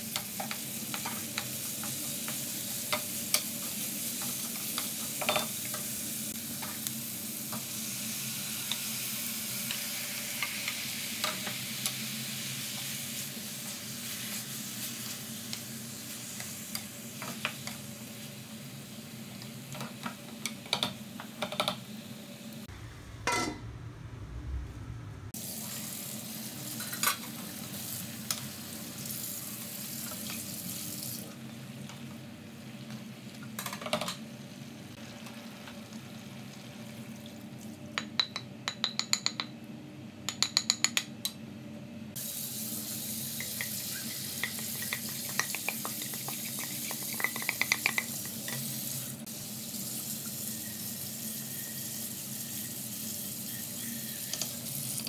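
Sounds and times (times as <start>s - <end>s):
chicken sizzling in a frying pan: 0.0s - 23.4s, 25.4s - 33.6s, 34.2s - 37.9s, 42.2s - 55.0s
low hum: 22.7s - 25.4s.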